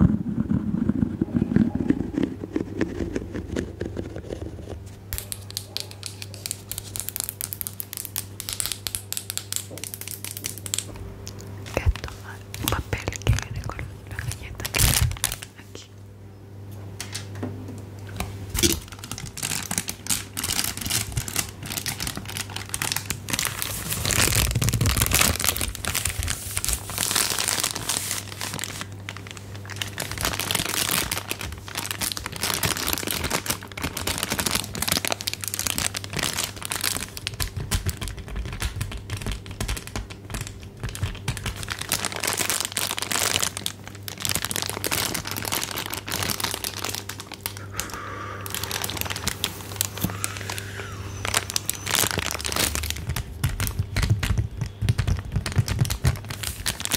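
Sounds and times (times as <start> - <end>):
crinkly material crumpling: 0.0 - 15.8, 18.6 - 56.9.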